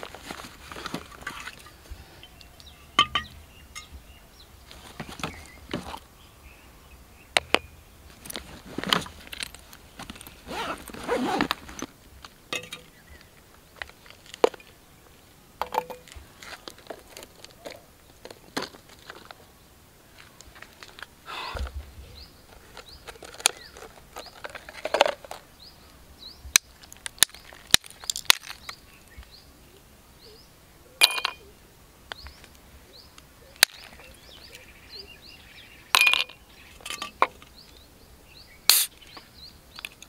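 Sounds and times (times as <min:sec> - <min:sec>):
backpack fabric rustling: 0:00.0 - 0:01.5, 0:08.2 - 0:11.9
objects knocking on stone: 0:03.0 - 0:03.9, 0:31.0 - 0:31.4.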